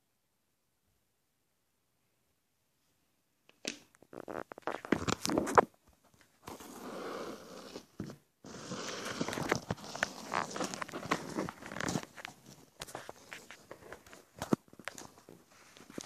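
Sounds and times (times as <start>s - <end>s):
rough rubbing and scraping: 6.5s - 14.3s.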